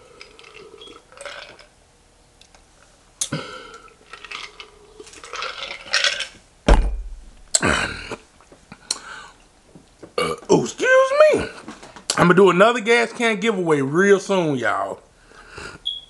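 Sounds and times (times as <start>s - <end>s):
person eating noises: 0.0s - 1.7s, 2.4s - 6.4s
loud thump: 6.7s - 7.6s.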